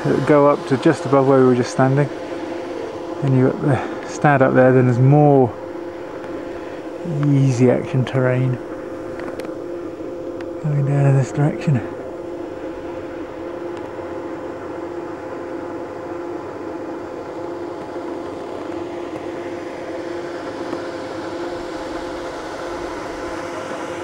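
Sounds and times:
mechanical hum with whining tones: 0:00.0 - 0:24.0.

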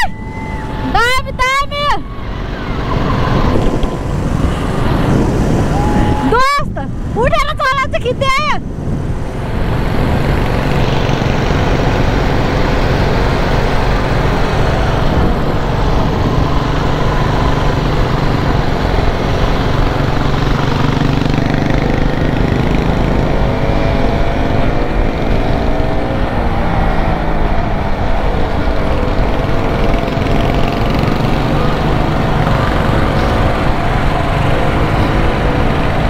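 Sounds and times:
wind and road noise: 0:00.0 - 0:36.0
motorcycle engine running: 0:08.6 - 0:36.0.

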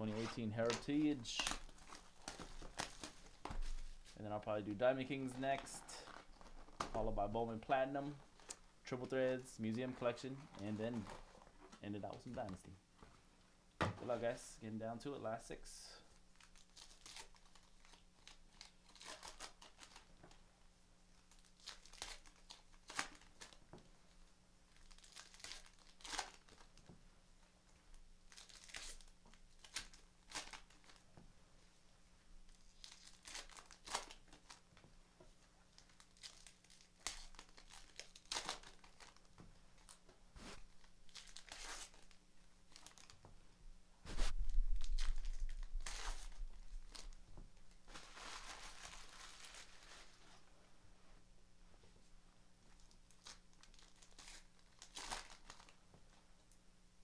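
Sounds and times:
wrappers tearing and crinkling: 0:00.0 - 0:04.2, 0:05.1 - 0:07.0, 0:16.0 - 0:20.4, 0:21.1 - 0:26.9, 0:28.3 - 0:31.1, 0:32.5 - 0:34.7, 0:35.7 - 0:43.2, 0:44.1 - 0:50.4, 0:52.8 - 0:55.8.

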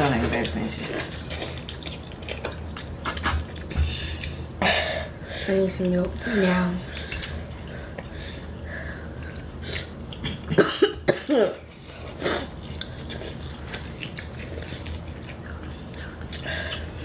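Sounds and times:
girl coughing: 0:10.5 - 0:11.6.

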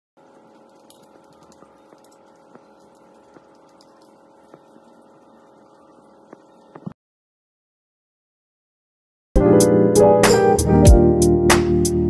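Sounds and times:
faint steady hum with held tones: 0:00.2 - 0:07.0.

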